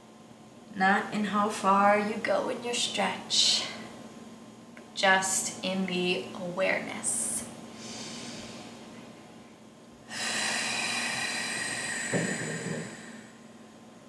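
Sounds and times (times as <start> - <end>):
woman breathing through nose: 7.7 - 8.8, 10.1 - 13.4.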